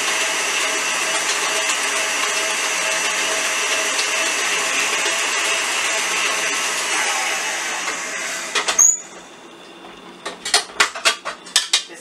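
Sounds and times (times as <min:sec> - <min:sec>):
beater mixing thick batter: 0:00.0 - 0:08.6
stand mixer whining: 0:00.0 - 0:11.4.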